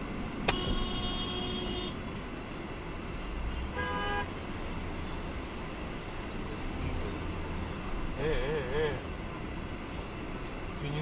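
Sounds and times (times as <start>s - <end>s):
road and engine noise: 0.0s - 11.0s
car horn honking: 0.4s - 2.0s, 3.6s - 4.3s.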